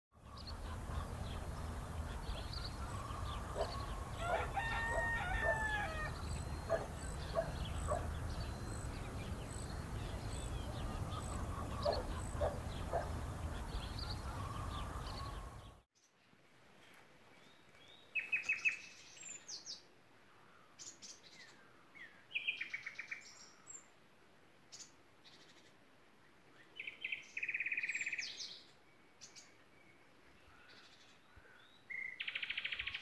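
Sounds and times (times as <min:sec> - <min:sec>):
small birds chirping: 0:00.2 - 0:16.2
rooster crowing: 0:02.8 - 0:08.0
hens clucking: 0:10.4 - 0:15.6.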